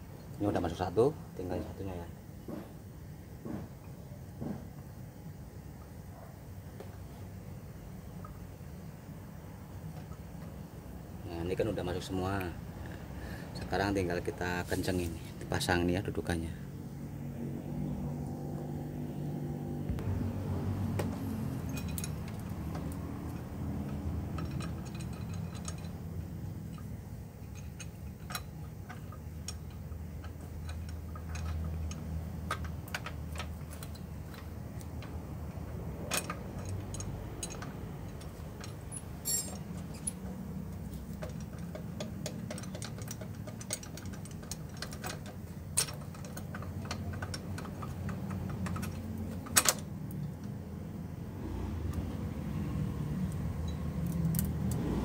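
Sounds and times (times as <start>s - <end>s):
low steady hum: 0.0s - 54.8s
metallic clicks of hand tools: 36.0s - 50.6s, 53.2s - 54.9s.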